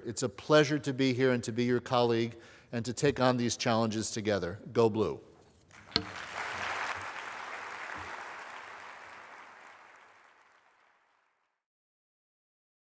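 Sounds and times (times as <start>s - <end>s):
audience applauding: 5.7s - 11.5s.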